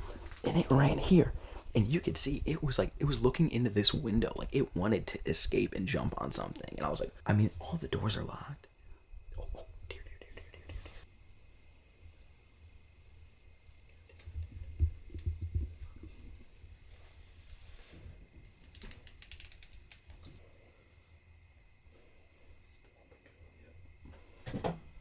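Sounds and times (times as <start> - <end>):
crickets chirping: 0.6 - 25.0
rustling: 16.8 - 20.4.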